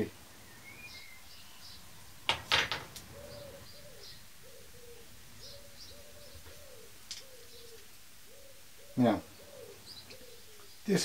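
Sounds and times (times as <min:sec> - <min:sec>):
small birds chirping: 0:00.0 - 0:11.0
pigeon cooing: 0:02.6 - 0:11.0.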